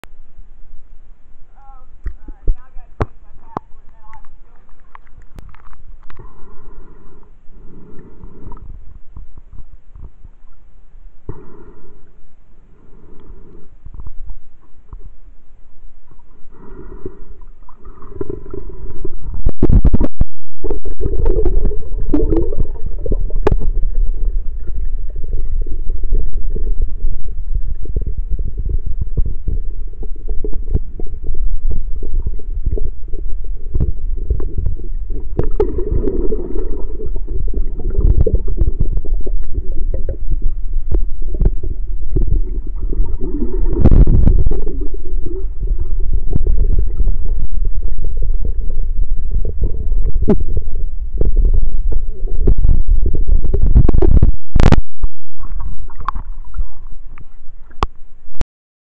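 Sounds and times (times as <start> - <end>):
underwater rumble of moving water: 0.0 - 58.4.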